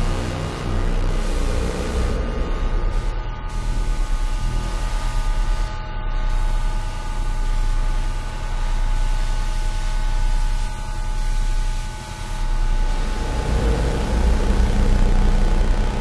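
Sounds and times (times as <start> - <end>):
dense electronic hiss: 0.0 - 16.0
heavy low hum: 0.0 - 16.0
steady high tones: 12.5 - 16.0.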